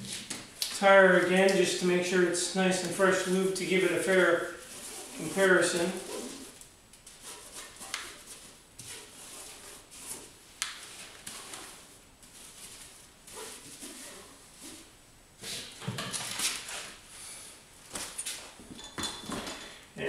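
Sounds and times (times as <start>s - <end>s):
rubbing on a tire: 11.3s - 14.9s.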